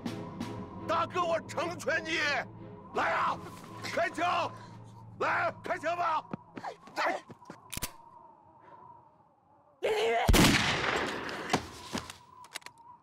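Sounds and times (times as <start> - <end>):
gunshots: 10.3 - 11.6.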